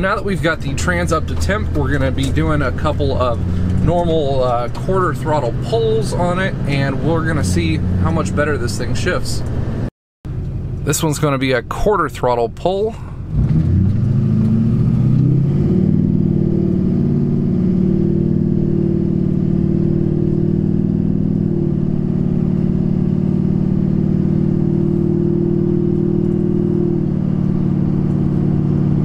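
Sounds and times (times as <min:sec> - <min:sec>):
gear shifts: 0:00.0 - 0:11.4
diesel engine accelerating: 0:00.0 - 0:29.0.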